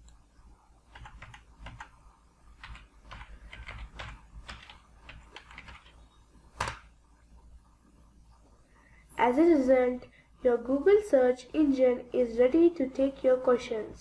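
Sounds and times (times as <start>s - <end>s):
computer keyboard typing: 0.8s - 6.9s.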